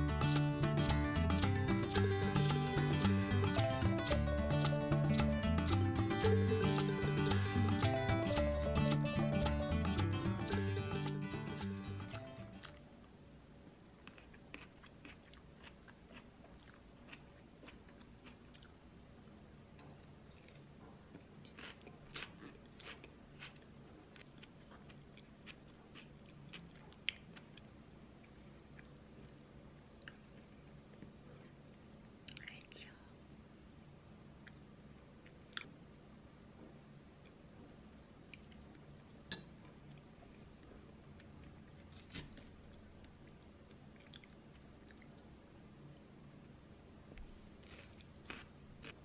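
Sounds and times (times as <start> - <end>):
faint low hum: 0.0 - 49.0
person chewing crisp salad: 14.0 - 29.4, 35.2 - 35.7, 39.6 - 45.3, 47.3 - 49.0.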